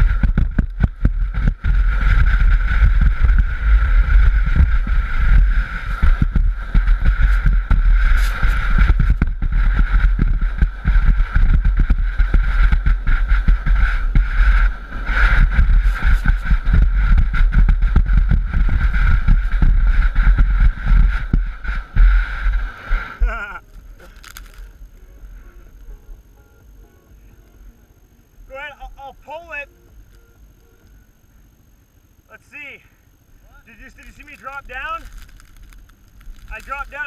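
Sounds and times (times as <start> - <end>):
sandboard scraping over sand: 0.0 - 25.4
wind rumble: 0.0 - 26.8.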